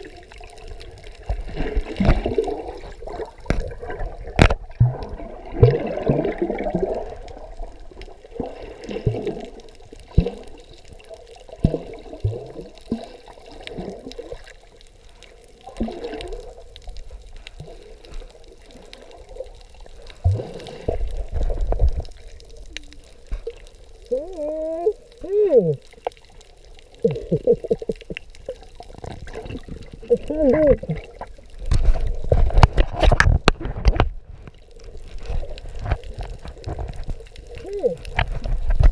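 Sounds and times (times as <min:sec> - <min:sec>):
water sloshing and gurgling: 0:00.0 - 0:38.9.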